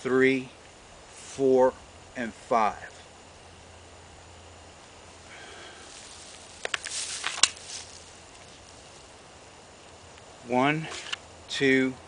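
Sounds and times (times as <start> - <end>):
holster and clothing rustle: 5.9 - 9.1.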